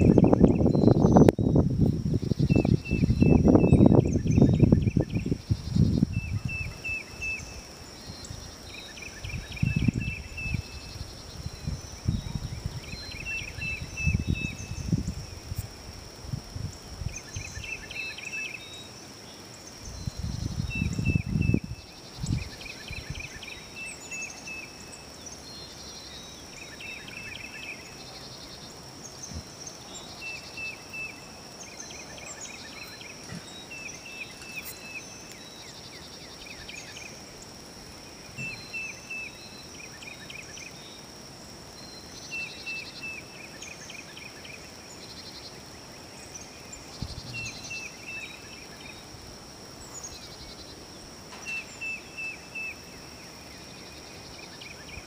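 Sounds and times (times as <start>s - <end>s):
low rumble on microphone: 46.9s - 47.6s.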